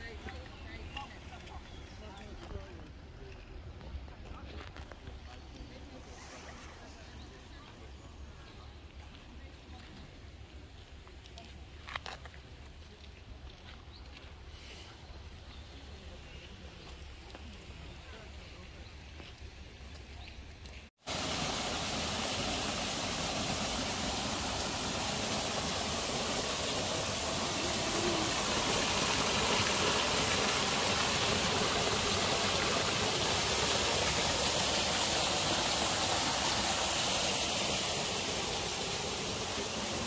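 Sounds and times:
water rushing down a rocky stream: 0:21.0 - 0:40.0.

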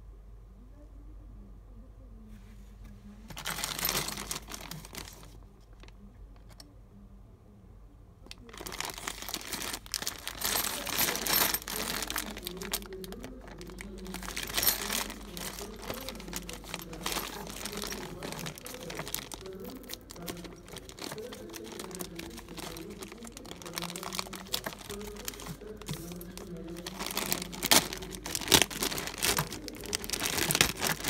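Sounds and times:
metal keys shifting: 0:03.3 - 0:05.3, 0:08.5 - 0:31.0
plastic bag crinkling: 0:03.3 - 0:05.9, 0:08.3 - 0:31.0.

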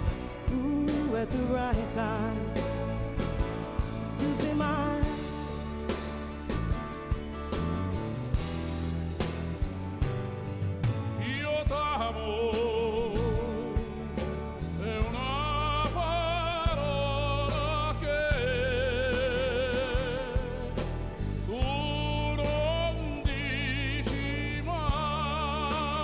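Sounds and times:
person singing with vibrato: 0:00.0 - 0:03.2, 0:03.8 - 0:05.6, 0:11.2 - 0:26.0
instrumental accompaniment: 0:00.0 - 0:26.0.

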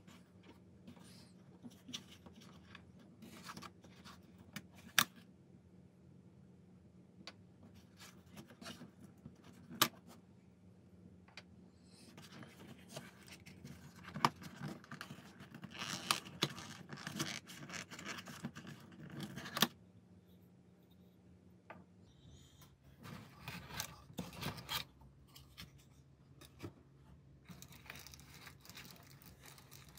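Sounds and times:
hands handling cardboard and plastic: 0:00.0 - 0:05.3, 0:07.3 - 0:10.2, 0:11.3 - 0:19.8, 0:22.9 - 0:29.9.

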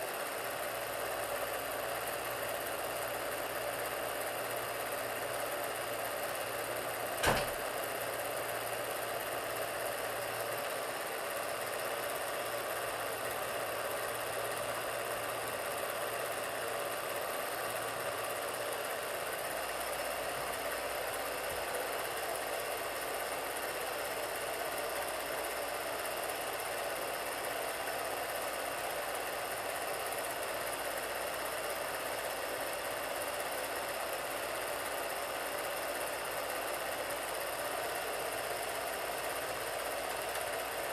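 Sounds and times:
film projector whirring: 0:00.0 - 0:40.9
sharp click: 0:07.2 - 0:07.6.

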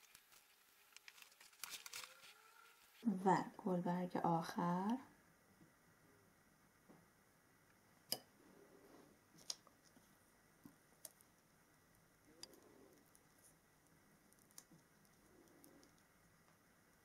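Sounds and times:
paper rustling: 0:00.0 - 0:03.1.

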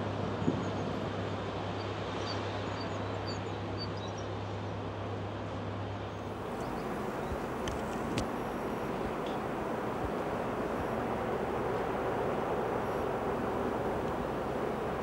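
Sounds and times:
outdoor noise: 0:00.0 - 0:15.0
diesel engine drone: 0:06.1 - 0:15.0.

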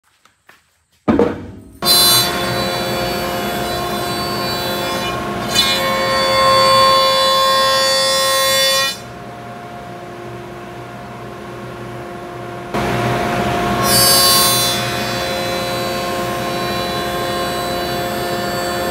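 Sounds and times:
jointer whining: 0:01.8 - 0:09.0, 0:12.7 - 0:18.9.

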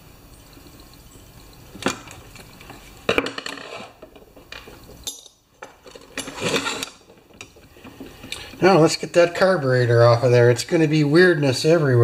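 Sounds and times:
tools rattling clatter: 0:03.1 - 0:08.1.

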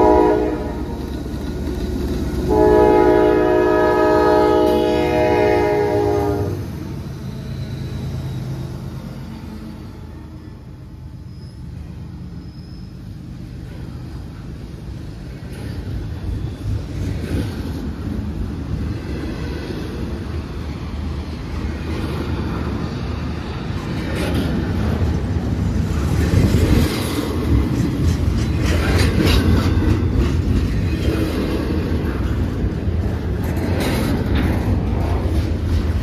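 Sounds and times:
rumble of rolling rail cars: 0:00.0 - 0:36.0
train wheel clicks: 0:00.9 - 0:02.5, 0:23.8 - 0:36.0.

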